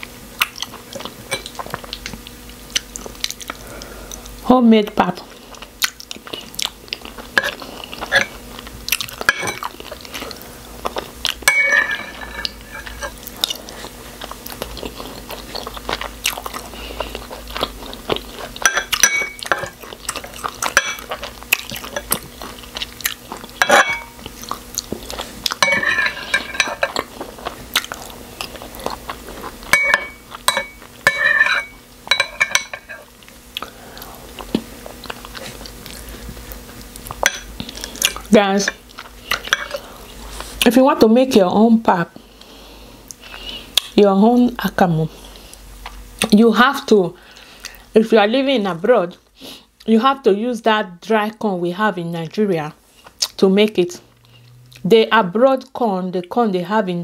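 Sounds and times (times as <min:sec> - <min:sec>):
chewing and mouth noise: 0:00.4 - 0:04.4, 0:05.1 - 0:11.4, 0:12.5 - 0:31.1, 0:33.1 - 0:40.7, 0:53.0 - 0:53.4
metal spoon clinking against bowls: 0:09.3 - 0:09.7, 0:11.4 - 0:13.2, 0:18.6 - 0:19.8, 0:20.7 - 0:21.1, 0:23.6 - 0:24.2, 0:25.6 - 0:27.0, 0:29.7 - 0:33.0.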